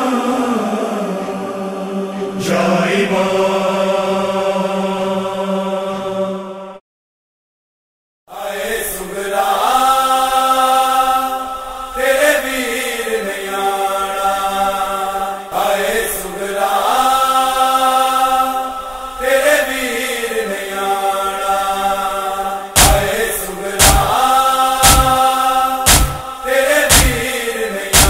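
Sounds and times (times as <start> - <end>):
vocal chanting in held notes: 0.0 - 6.8, 8.3 - 28.0
steady drone: 22.8 - 28.0.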